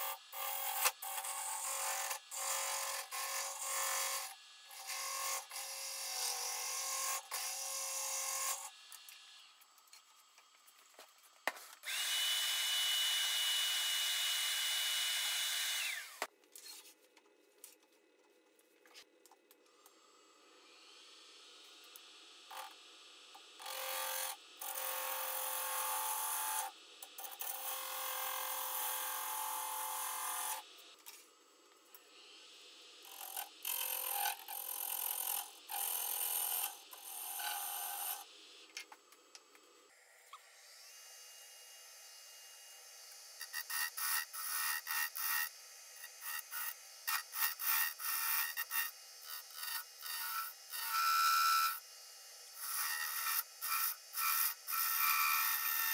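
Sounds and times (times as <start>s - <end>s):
lathe tool cutting wood: 11.8s - 16.3s, 33.0s - 38.2s, 43.1s - 51.8s, 52.6s - 55.9s.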